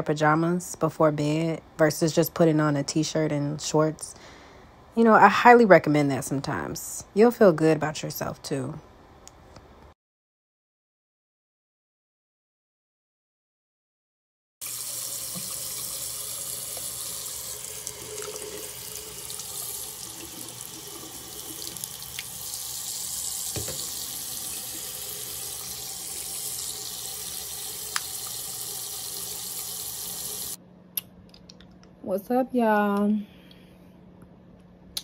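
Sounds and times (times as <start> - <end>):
tap water running into sink: 14.6 - 30.6.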